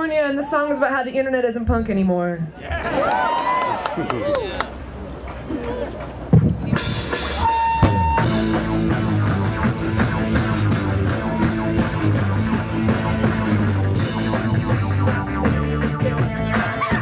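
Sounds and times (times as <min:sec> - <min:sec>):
live rock band playing: 0:06.3 - 0:17.0
pulsing bass line: 0:06.3 - 0:17.0.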